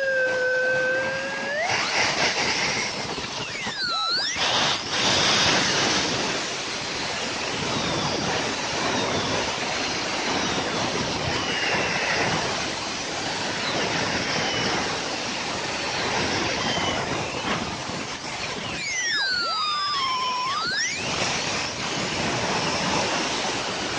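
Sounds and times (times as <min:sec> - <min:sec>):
high whine gliding down: 0:00.0 - 0:08.6, 0:16.4 - 0:22.8
gas turbine jet noise: 0:00.0 - 0:23.9.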